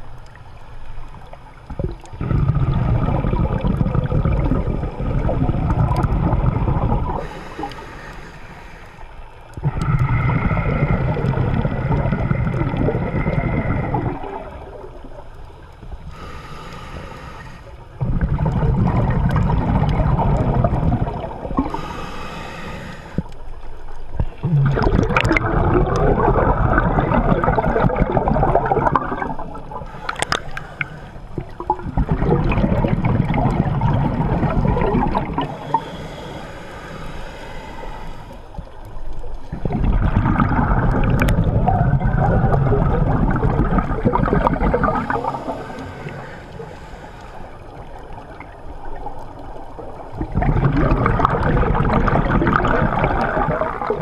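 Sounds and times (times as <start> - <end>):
diver exhaling bubbles underwater: 1.7 - 7.8, 9.6 - 15.3, 18.0 - 23.2, 24.2 - 36.4, 39.4 - 46.5, 47.6 - 54.0
breathing in through regulator: 7.1 - 14.5, 16.0 - 19.7, 20.7 - 23.6, 29.1 - 32.7, 34.0 - 38.7, 44.2 - 48.5.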